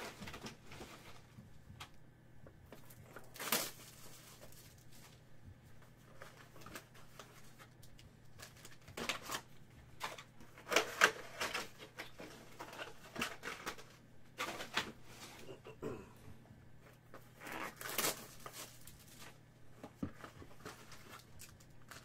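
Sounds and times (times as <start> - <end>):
packaging rustling: 2.7 - 5.2, 17.1 - 19.4.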